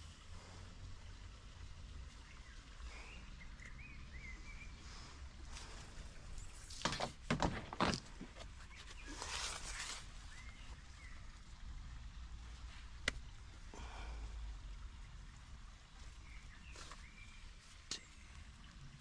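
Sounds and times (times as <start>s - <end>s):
low steady rumble: 0.0s - 6.8s, 8.4s - 19.0s
bird chirping: 2.2s - 5.0s
scraping rustle: 6.4s - 10.3s
plastic plant pots knocking: 6.7s - 8.6s.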